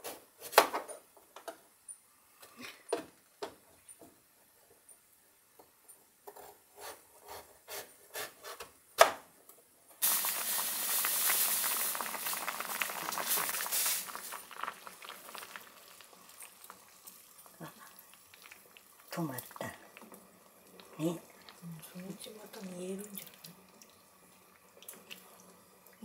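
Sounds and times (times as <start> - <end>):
water boiling in a pot: 9.9 - 26.0.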